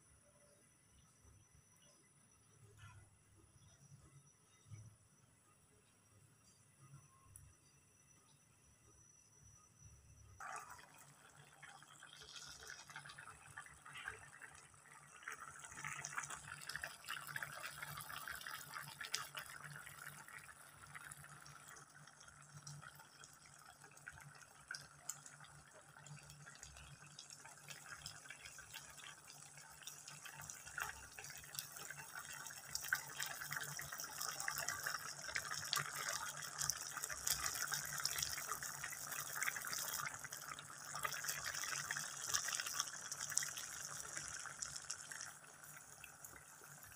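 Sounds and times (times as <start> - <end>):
curry bubbling in a pot: 10.4 - 46.9.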